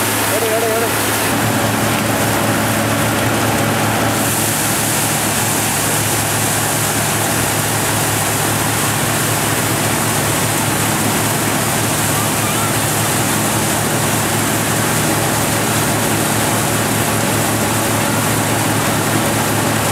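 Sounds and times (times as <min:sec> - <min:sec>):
thresher running: 0:00.0 - 0:19.9.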